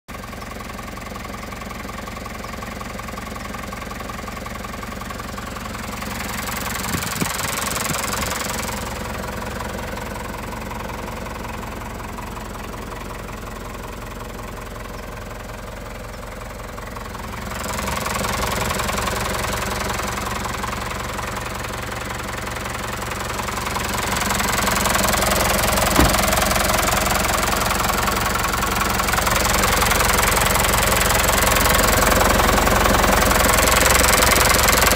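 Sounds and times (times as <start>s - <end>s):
diesel engine idling: 0.1s - 34.9s
brief knock: 25.9s - 26.4s.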